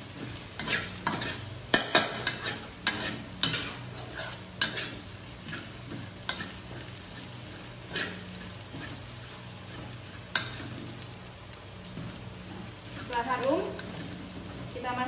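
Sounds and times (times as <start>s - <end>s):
paste sizzling in hot oil: 0.0s - 15.0s
spatula scraping a pan: 0.1s - 11.1s, 11.9s - 14.7s.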